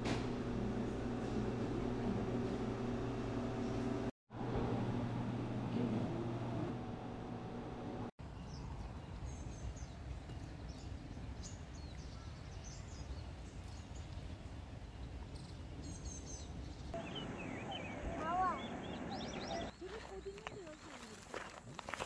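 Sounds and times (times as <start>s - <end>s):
small birds chirping: 8.2s - 22.0s.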